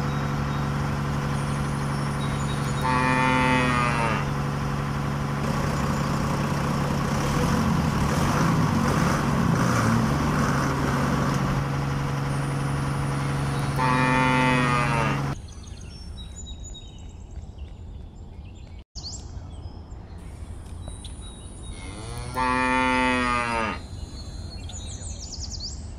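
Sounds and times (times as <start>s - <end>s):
engine hum: 0.0s - 15.5s
cow mooing: 2.7s - 4.4s, 13.2s - 15.4s, 21.7s - 23.9s.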